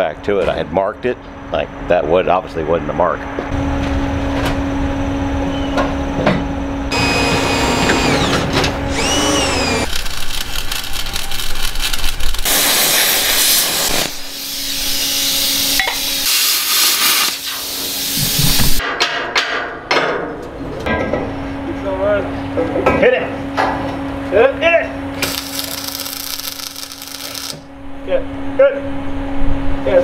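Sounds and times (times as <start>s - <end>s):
electric drill boring through steel: 6.9s - 18.4s, 25.2s - 27.6s
arc welding crackle and hiss: 9.0s - 18.8s, 25.2s - 27.7s.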